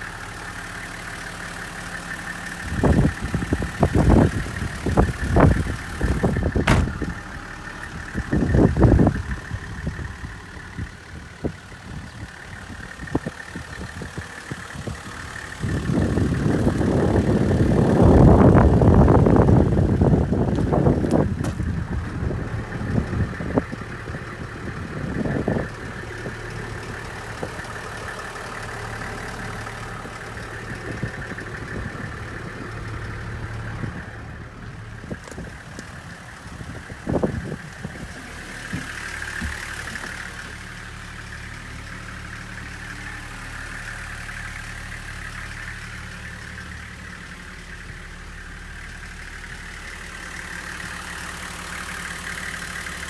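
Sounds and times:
diesel engine idling: 0.0 - 53.0
sharp knock: 6.6 - 7.1
thumps: 6.6 - 7.2.

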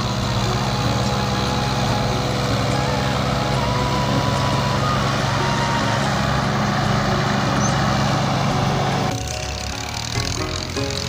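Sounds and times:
tractor diesel engines under load: 0.0 - 11.0.

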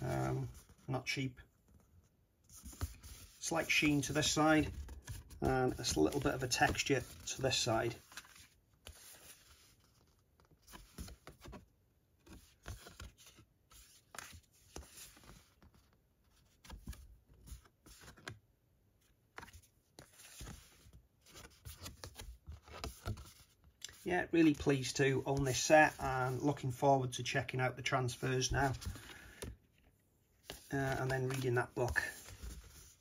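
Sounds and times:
card prints rustling and sliding: 2.5 - 11.6, 30.4 - 33.0.

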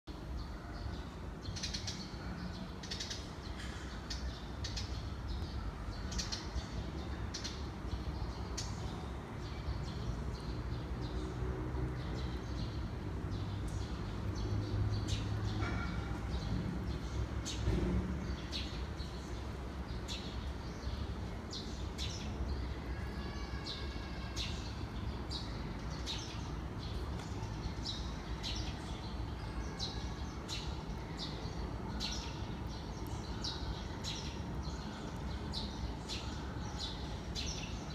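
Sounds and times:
small birds chirping: 12.0 - 37.9.

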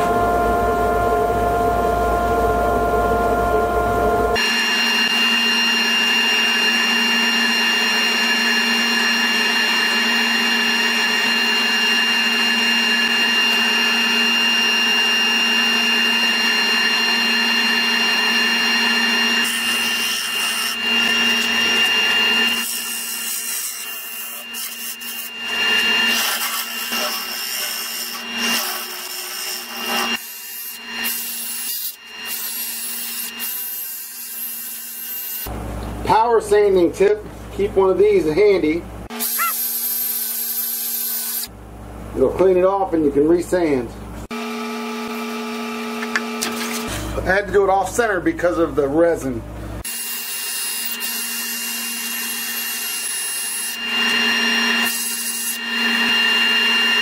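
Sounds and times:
wood lathe motor whine: 0.0 - 35.5, 39.1 - 41.5, 44.3 - 47.2, 49.8 - 57.0
sanding disc on drill: 4.4 - 35.5, 39.1 - 41.5, 49.8 - 57.0
sanding against spinning wood: 16.1 - 33.4.

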